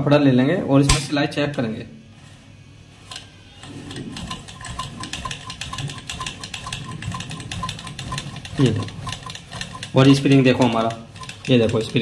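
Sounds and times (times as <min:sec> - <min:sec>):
sewing machine clattering: 0:03.0 - 0:12.0.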